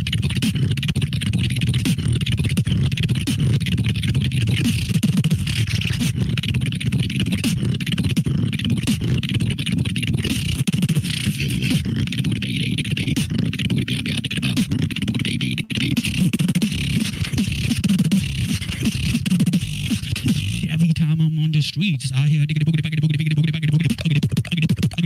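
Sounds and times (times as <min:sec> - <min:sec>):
beatboxing: 0:00.0 - 0:25.0.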